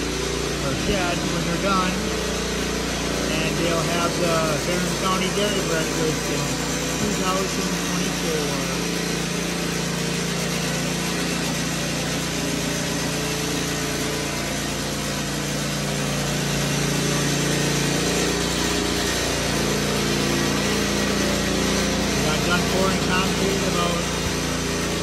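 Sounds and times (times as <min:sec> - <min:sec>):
power trowel engine running: 0:00.0 - 0:25.0.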